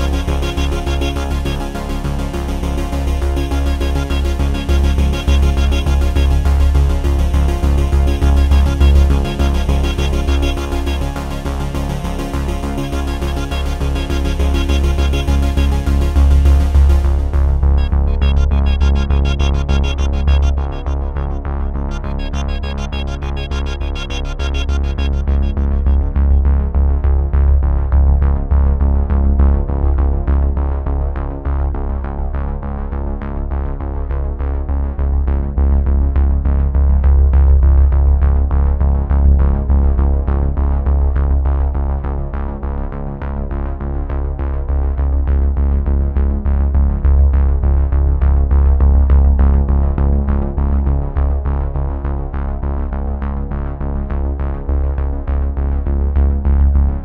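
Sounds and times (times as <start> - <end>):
electronic music with synthesizer: 0.0 - 28.8.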